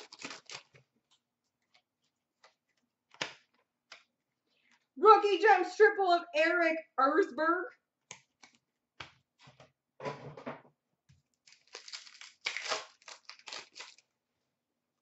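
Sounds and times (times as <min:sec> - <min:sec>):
pack wrapper crinkling: 0:00.0 - 0:00.8, 0:11.4 - 0:14.1
trading cards rustling: 0:00.0 - 0:00.8, 0:11.4 - 0:14.0.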